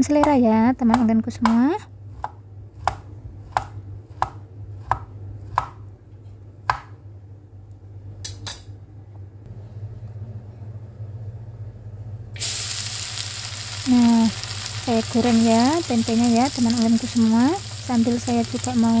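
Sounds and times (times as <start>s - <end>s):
knife chopping on cutting board: 2.2s - 5.9s, 6.6s - 7.0s
food sizzling in hot oil: 12.4s - 19.0s.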